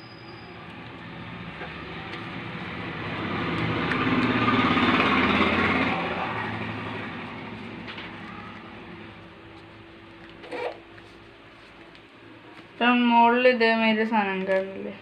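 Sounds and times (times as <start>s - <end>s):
vehicle engine driving past: 0.0s - 9.2s.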